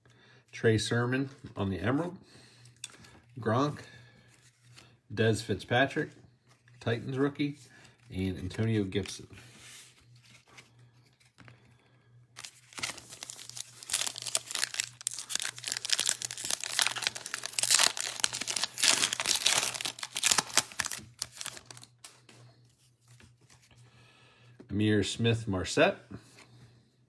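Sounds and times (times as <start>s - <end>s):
foil wrapper crackling: 12.4s - 22.1s.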